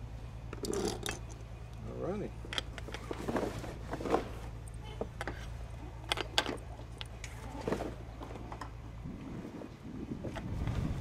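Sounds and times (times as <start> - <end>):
steady low hum: 0.0 - 11.0
metal shackle clicking and clinking: 2.4 - 3.2, 5.1 - 7.4.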